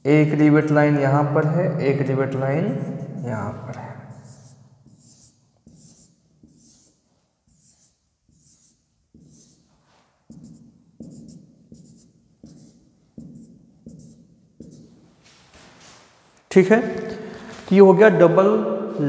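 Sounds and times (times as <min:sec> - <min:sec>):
marker squeaking on whiteboard: 0:02.7 - 0:15.0.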